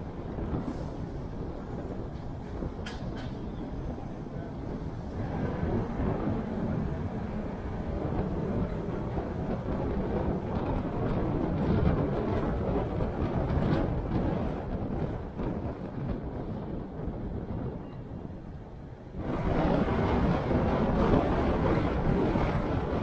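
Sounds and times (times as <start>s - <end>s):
car road noise rumble: 0.0s - 17.7s, 19.1s - 23.0s.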